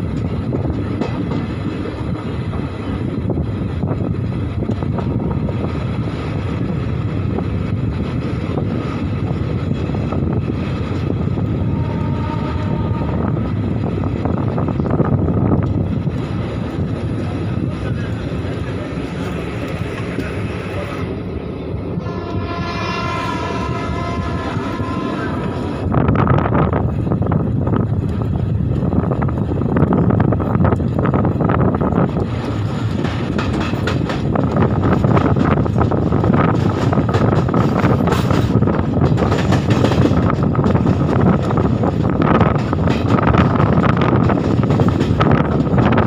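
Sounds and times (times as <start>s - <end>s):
rushing air: 0.0s - 46.0s
train wheels rumbling on rails: 0.0s - 46.0s
train horn: 11.5s - 13.6s, 22.0s - 26.2s.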